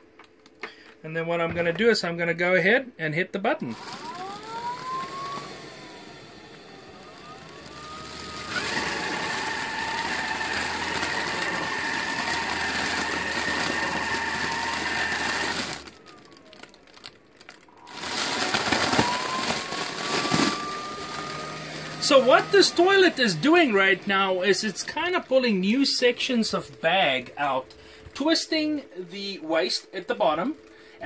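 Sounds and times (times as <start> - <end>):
motor whirring: 3.7 - 16.7, 17.8 - 25.2
rising motor whine: 17.8 - 25.4.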